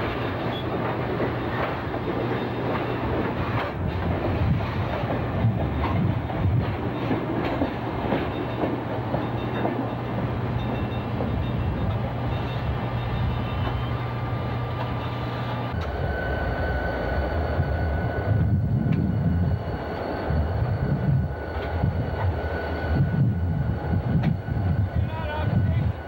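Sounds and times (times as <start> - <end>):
diesel locomotives rumbling past: 0.0 - 26.0
freight train low hum: 0.0 - 26.0
thin steady whine: 12.4 - 25.9.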